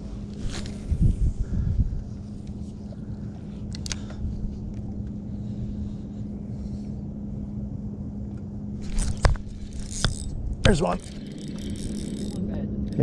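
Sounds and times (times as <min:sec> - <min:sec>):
wind rumble on microphone: 0:00.0 - 0:13.0
boat motor humming: 0:02.1 - 0:13.0.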